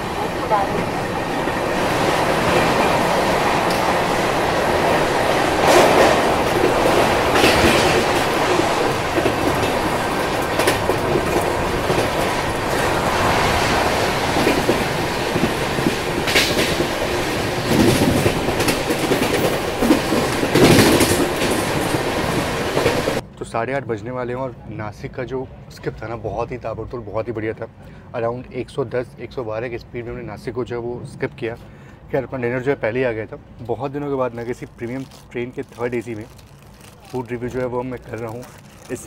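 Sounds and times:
wheels clacking over rail joints: 0.0s - 23.2s
train wind and rail rumble: 0.0s - 39.0s.

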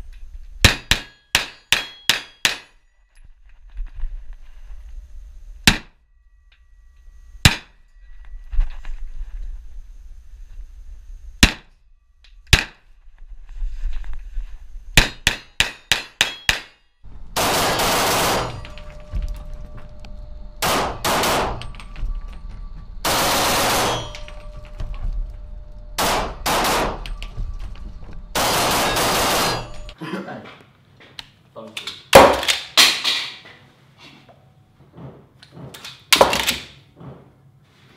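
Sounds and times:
pistol shots indoors: 17.3s - 18.8s, 20.6s - 21.9s, 23.0s - 24.5s, 26.0s - 27.3s, 28.4s - 30.0s, 32.1s - 33.1s.

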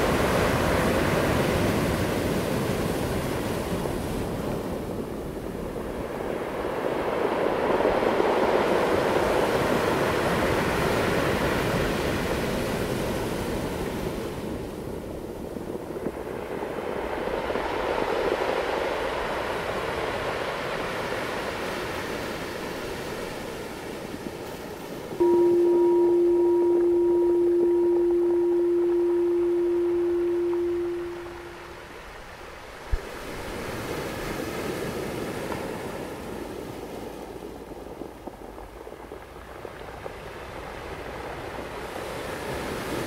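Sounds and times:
surf washing over rocks: 0.0s - 43.0s
loud steady tone: 25.2s - 31.9s.

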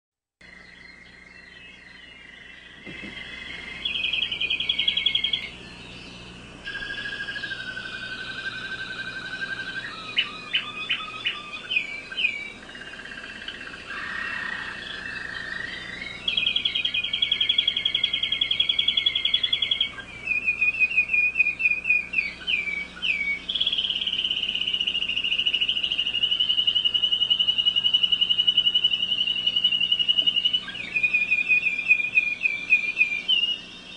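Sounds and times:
canary singing trills: 0.4s - 33.9s.

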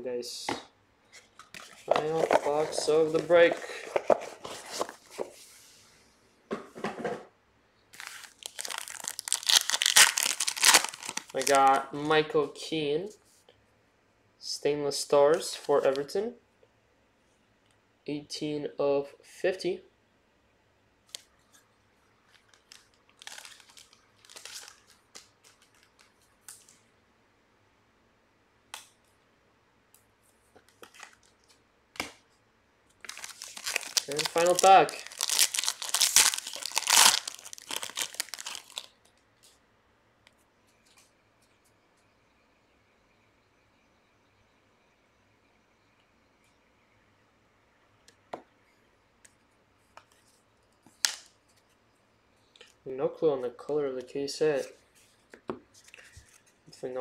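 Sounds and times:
trading cards clicking and rustling: 1.4s - 5.3s
plastic wrapper crinkling and tearing: 8.0s - 11.8s, 22.3s - 26.7s, 30.7s - 31.6s, 33.0s - 39.2s, 50.9s - 51.3s.

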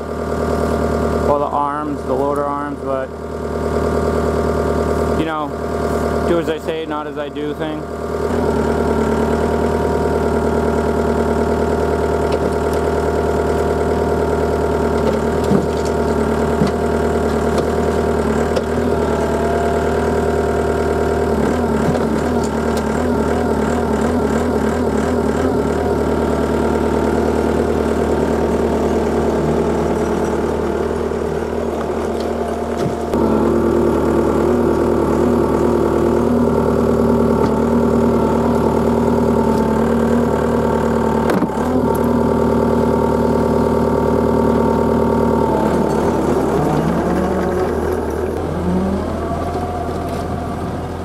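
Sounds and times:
diesel engine running: 0.0s - 51.0s.

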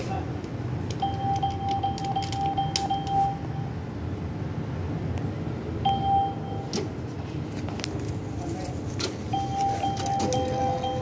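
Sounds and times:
keypad beeps: 1.0s - 3.7s, 5.8s - 6.7s, 9.3s - 11.0s.

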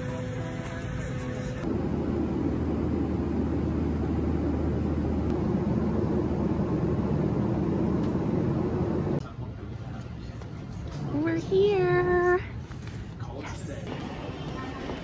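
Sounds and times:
airliner engines drone: 0.0s - 9.2s
constant low hum: 0.0s - 11.1s.

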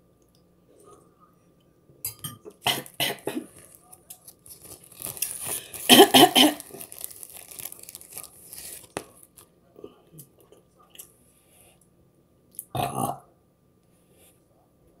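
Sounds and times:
woman coughing: 5.8s - 6.7s.

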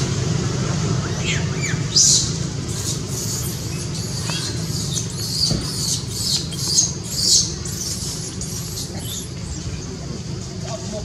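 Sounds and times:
low hum: 0.0s - 11.0s
baby monkey squeaks: 1.3s - 9.9s.

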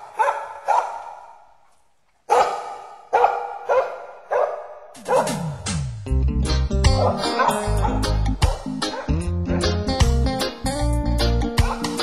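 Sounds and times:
dog barking: 0.0s - 1.5s, 2.3s - 5.5s, 7.0s - 9.8s, 11.6s - 12.0s
music: 5.0s - 12.0s.

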